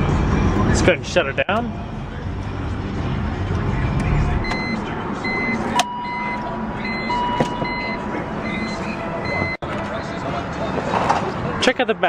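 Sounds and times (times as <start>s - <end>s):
car engine rumble: 0.0s - 11.6s
car warning chime beeping: 4.4s - 9.6s.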